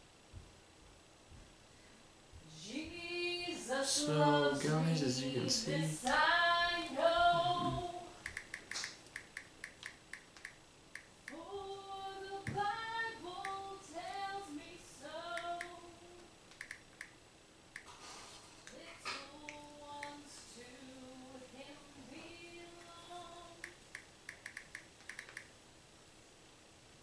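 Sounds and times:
light ticks: 8.2s - 11.4s, 13.4s - 13.6s, 15.4s - 15.8s, 16.5s - 17.9s, 18.6s - 20.2s, 23.6s - 25.5s.

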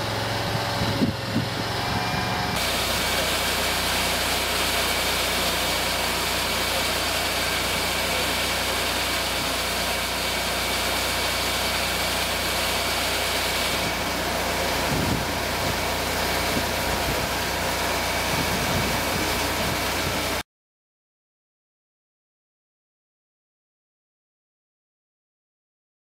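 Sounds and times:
engine droning: 0.0s - 20.4s
high steady whine: 0.0s - 20.4s
grain feeding into auger: 2.6s - 20.4s.

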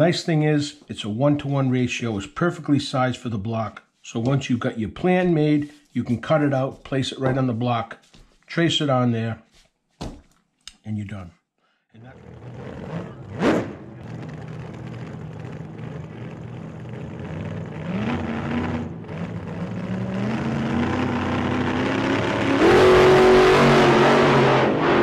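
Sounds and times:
car engine revving: 12.0s - 25.0s.

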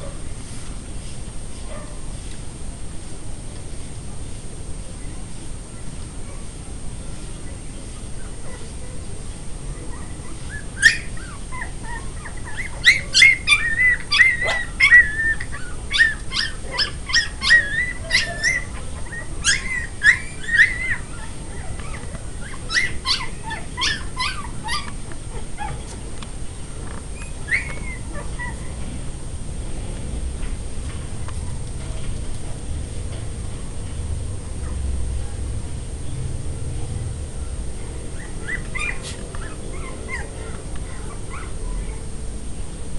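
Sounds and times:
puppies yelping and whining: 9.7s - 26.0s, 27.1s - 28.8s, 38.1s - 42.0s.

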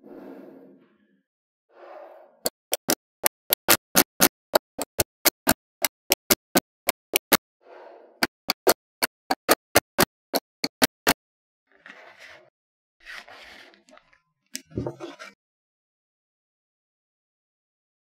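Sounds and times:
magnetic balls sliding: 2.0s - 7.4s, 8.2s - 11.2s
magnetic balls clicking together: 2.5s - 7.4s, 8.2s - 11.2s.

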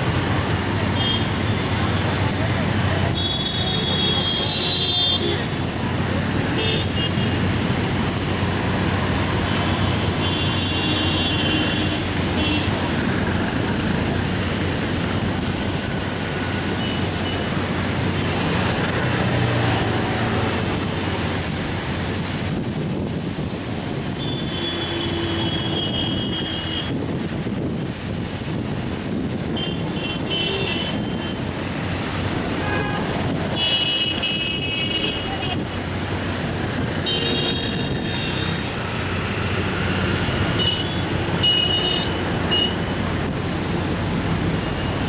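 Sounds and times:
street traffic noise: 0.0s - 45.0s.

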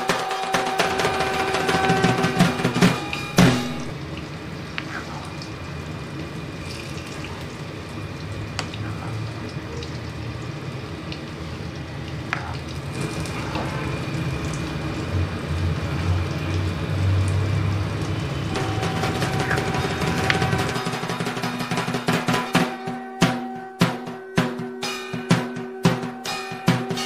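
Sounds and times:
food bubbling in a pan: 2.9s - 20.8s.

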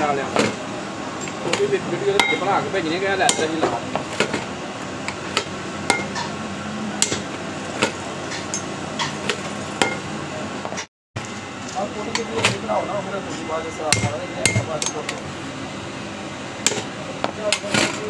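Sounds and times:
hammer striking steel punch: 3.3s - 4.3s, 5.3s - 6.3s, 7.0s - 8.7s, 13.9s - 15.1s.

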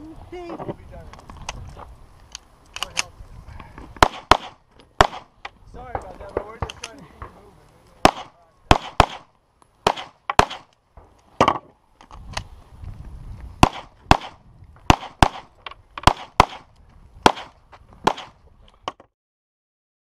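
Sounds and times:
pistol shots: 4.0s - 5.4s, 8.0s - 10.8s, 13.6s - 18.4s.

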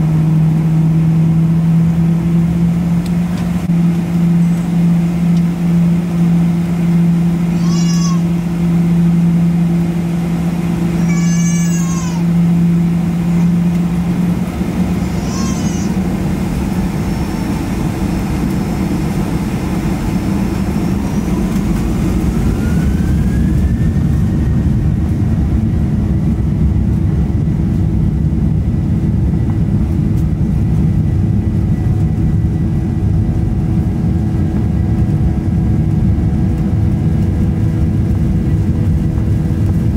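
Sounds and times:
aircraft cabin hum: 0.0s - 39.9s
jet engines spooling up: 0.0s - 39.9s
high-pitched meow-like cries: 7.6s - 8.3s, 11.0s - 12.3s, 15.0s - 16.0s.

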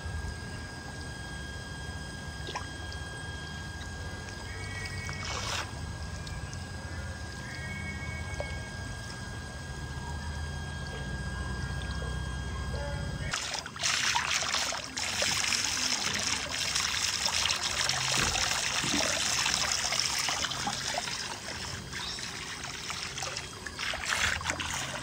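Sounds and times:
water trickling into pool: 0.2s - 12.5s, 13.2s - 25.0s
small splashes in water: 5.0s - 5.8s, 13.3s - 25.0s.

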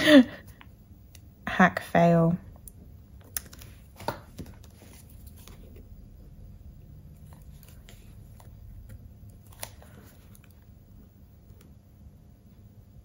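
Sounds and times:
paper stickers rustling and tapping: 3.2s - 5.8s.

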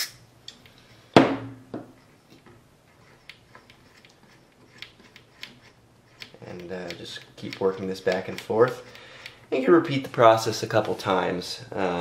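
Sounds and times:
faint clicks and rubs: 2.0s - 8.9s.

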